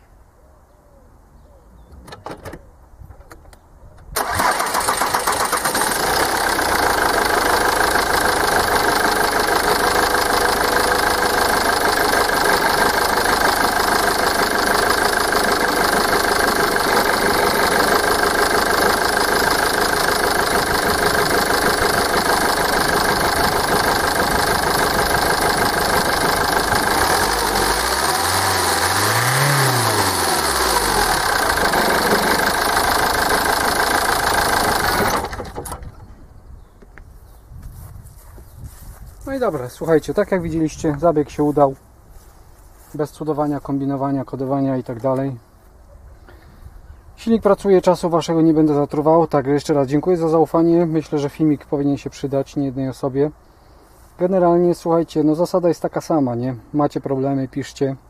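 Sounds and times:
diesel engine starting and idling: 4.2 - 36.1.

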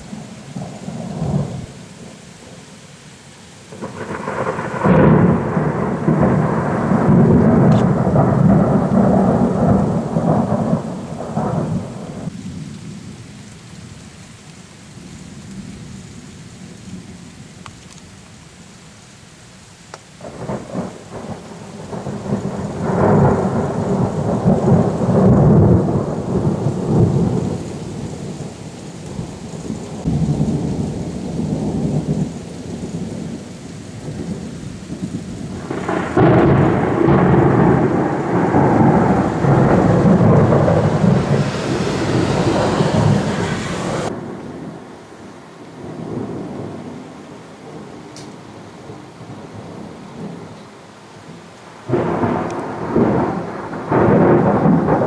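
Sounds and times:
thunder rumbling: 0.0 - 2.6, 3.7 - 13.2, 20.2 - 45.2, 45.8 - 48.2, 51.8 - 55.0.

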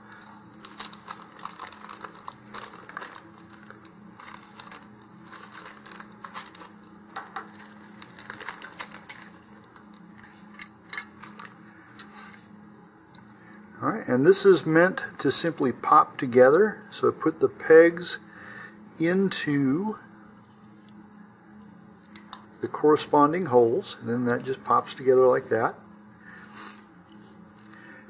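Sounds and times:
plastic bag crinkling: 0.0 - 11.7
faint steady hum: 0.0 - 28.0.

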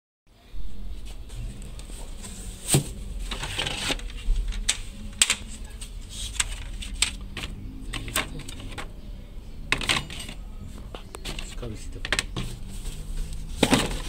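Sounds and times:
cardboard scraping rustles: 1.0 - 4.8, 12.3 - 14.0.

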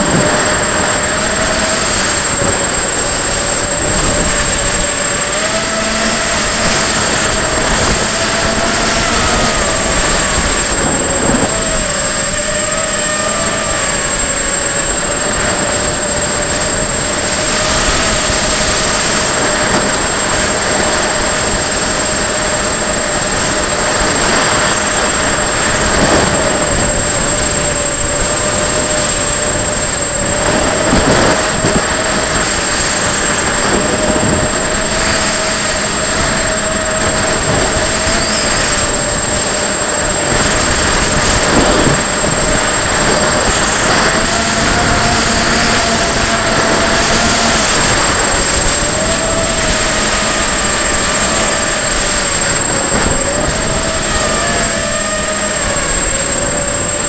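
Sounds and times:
quadcopter motors whining: 0.0 - 57.0
wind rush: 0.0 - 57.0
thin high whistle: 32.8 - 55.8.

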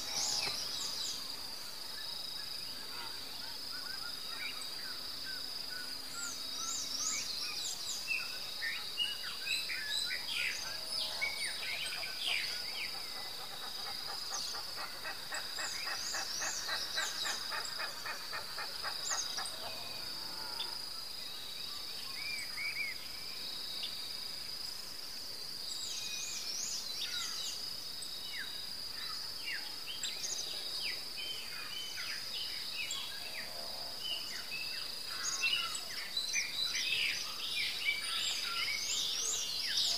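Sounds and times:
birds chirping and calling: 10.6 - 19.9.

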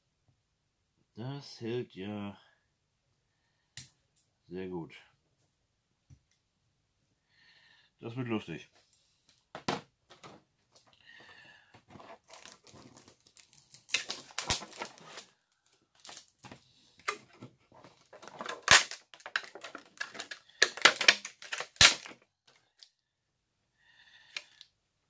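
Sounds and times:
plastic crinkling and crackling: 11.8 - 22.9
plastic snapping: 12.3 - 15.2, 18.2 - 22.2.

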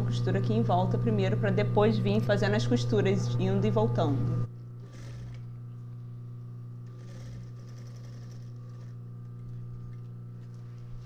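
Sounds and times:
sewing machine stitching denim: 4.8 - 5.5, 6.8 - 9.6.

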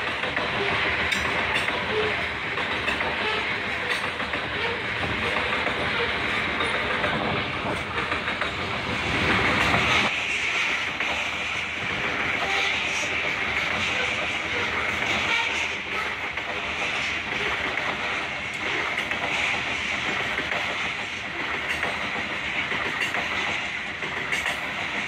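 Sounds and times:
freight train wheels on rails: 0.0 - 25.0.

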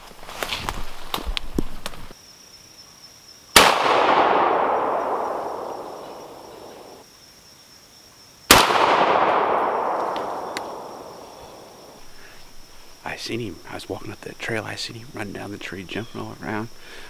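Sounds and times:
shotgun shots with echo: 3.6 - 7.0, 8.5 - 11.7.

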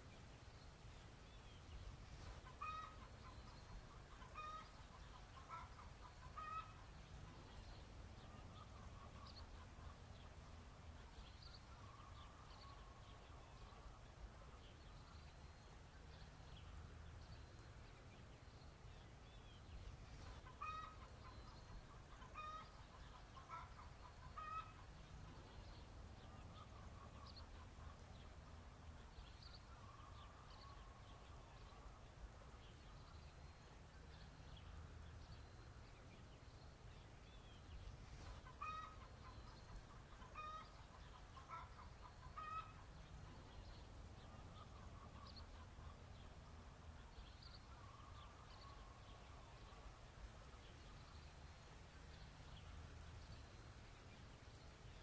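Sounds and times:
chickens clucking: 2.3 - 6.9, 20.3 - 25.0, 38.2 - 43.4.

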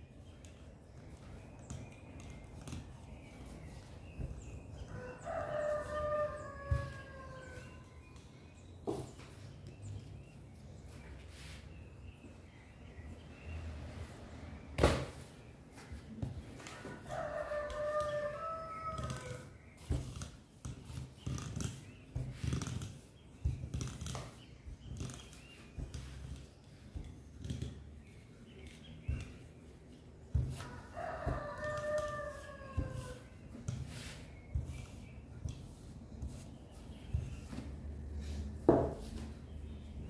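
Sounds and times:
rooster crowing: 4.9 - 7.8, 16.9 - 19.5, 30.6 - 33.2
rolling pin knocking on dough: 17.6 - 37.7, 38.6 - 39.3.

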